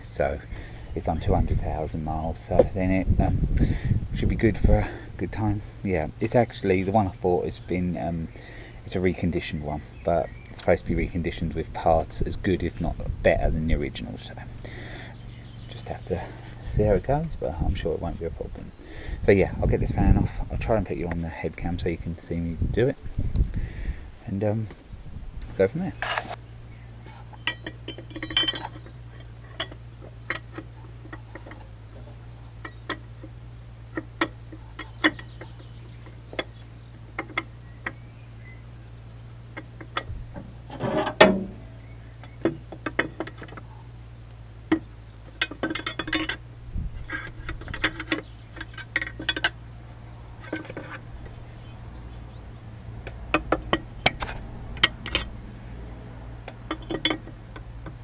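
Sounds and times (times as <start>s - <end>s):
low hum: 0.0s - 58.0s
spanners clinking on metal: 27.1s - 38.0s, 44.7s - 49.7s, 50.4s - 52.4s, 53.0s - 55.4s, 56.4s - 58.0s.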